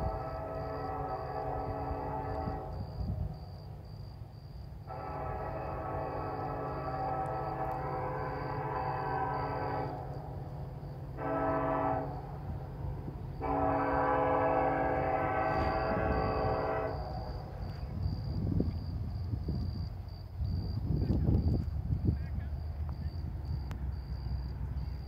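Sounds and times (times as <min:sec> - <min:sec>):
locomotive air horn: 0:00.0 - 0:03.2, 0:04.9 - 0:10.2, 0:11.1 - 0:12.7, 0:13.4 - 0:17.9
train rumble: 0:00.0 - 0:25.0.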